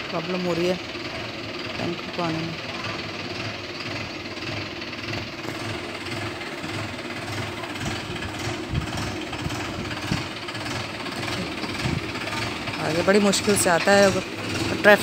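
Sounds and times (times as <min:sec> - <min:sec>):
tractor diesel engine chugging: 0:00.0 - 0:15.0.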